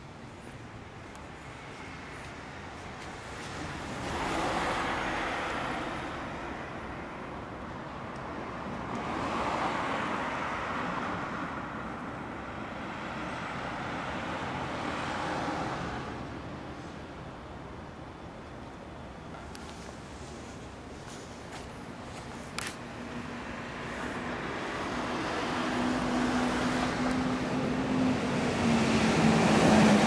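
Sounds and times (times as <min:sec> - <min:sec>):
vehicles passing: 0:00.0 - 0:30.0
steady background hum: 0:11.1 - 0:29.8.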